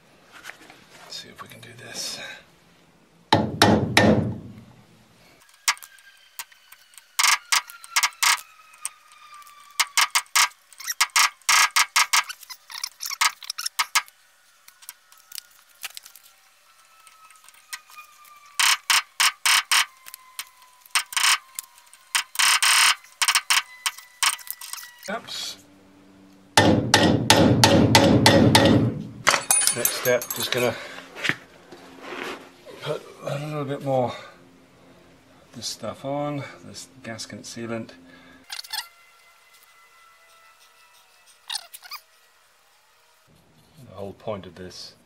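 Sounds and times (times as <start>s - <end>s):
light metallic taps and clinks: 29.3s - 30.8s.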